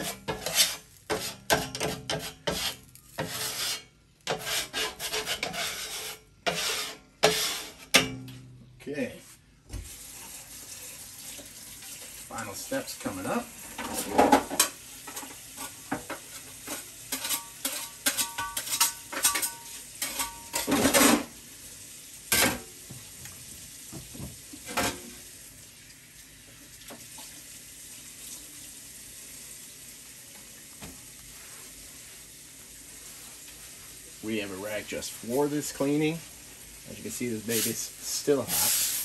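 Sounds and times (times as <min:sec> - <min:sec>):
water sizzling on hot griddle: 0:00.0 - 0:08.0, 0:09.6 - 0:39.0
metal utensils and bowls clattering: 0:00.0 - 0:08.4, 0:13.7 - 0:21.3.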